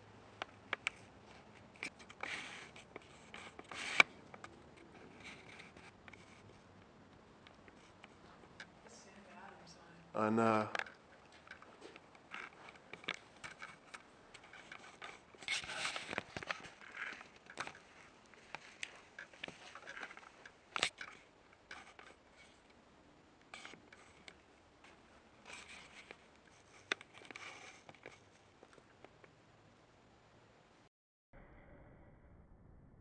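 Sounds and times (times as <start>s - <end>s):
small clicks: 10.7s - 22.8s.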